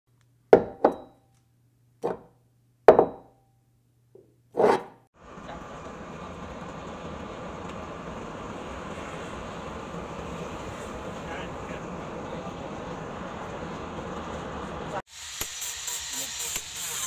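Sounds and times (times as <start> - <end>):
steady even noise: 5.2 - 15.0.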